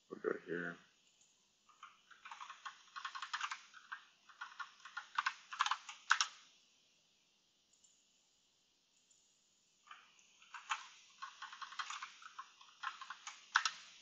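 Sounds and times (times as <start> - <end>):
computer keyboard typing: 1.1 - 6.5, 9.9 - 14.0.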